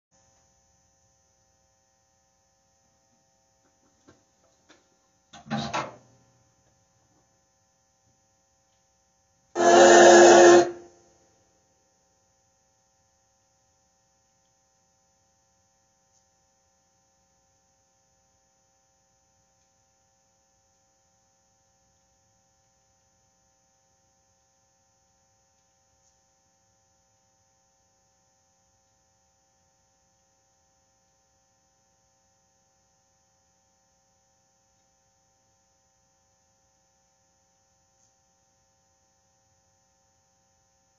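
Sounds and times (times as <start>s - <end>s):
faint electrical hum: 0.2s - 40.9s
high thin whine: 9.6s - 10.9s
loud burst of sound: 9.6s - 10.9s.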